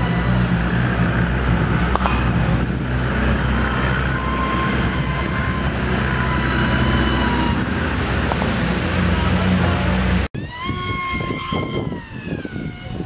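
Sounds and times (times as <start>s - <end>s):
steady low rumble: 0.0s - 10.4s
model plane motor whine: 0.0s - 13.0s.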